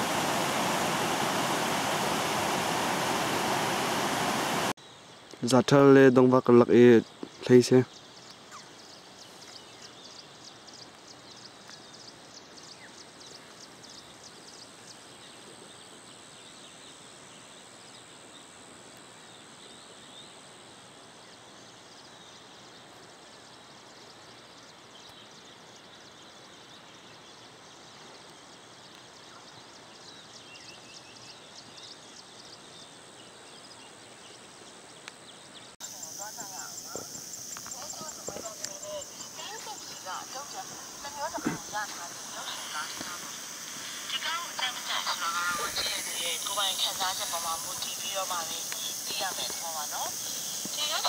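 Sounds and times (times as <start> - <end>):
river rushing: 0.0 - 4.8, 38.5 - 51.0.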